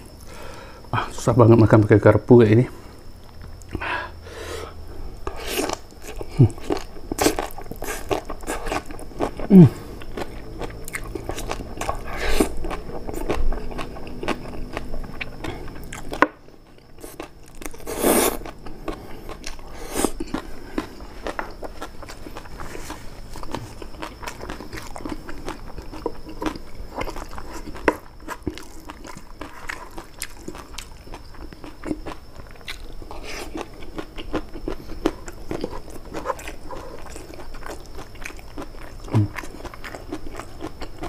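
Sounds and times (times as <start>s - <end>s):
wet chewing and smacking: 5.2s - 41.0s.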